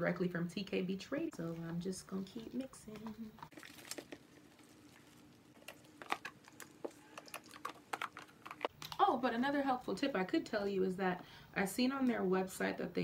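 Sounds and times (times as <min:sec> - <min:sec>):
plastic containers handled: 0:02.4 - 0:09.0.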